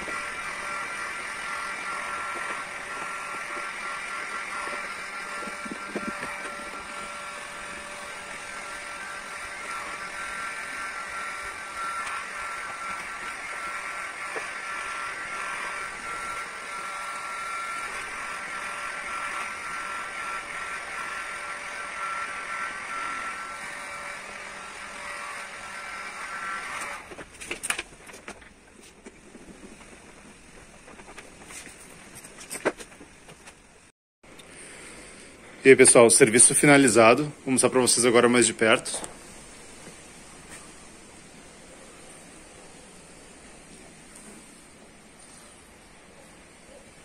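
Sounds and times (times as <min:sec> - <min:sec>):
heat gun fan blowing: 0:00.0 - 0:33.4.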